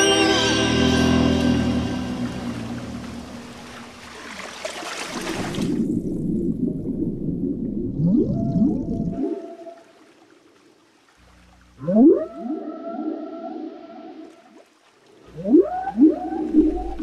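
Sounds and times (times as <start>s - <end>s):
music: 0.0s - 3.5s
whale song: 0.0s - 4.1s, 5.6s - 17.0s.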